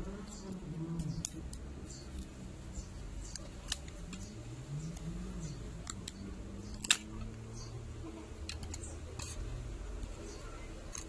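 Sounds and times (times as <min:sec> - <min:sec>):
plastic clips snapping: 0:05.8 - 0:07.3.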